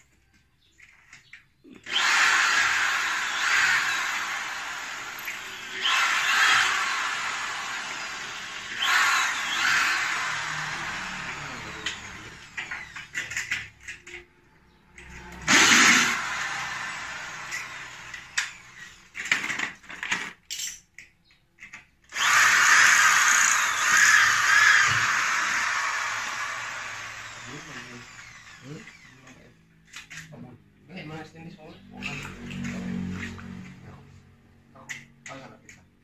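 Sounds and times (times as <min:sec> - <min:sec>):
power drill drilling into metal: 0:01.8 - 0:13.5, 0:15.2 - 0:19.2, 0:22.1 - 0:29.5.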